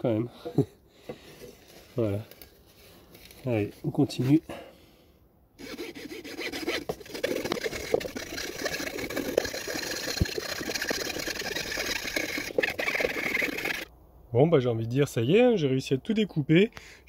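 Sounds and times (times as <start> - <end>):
hacksaw cutting wood: 5.6 - 13.9.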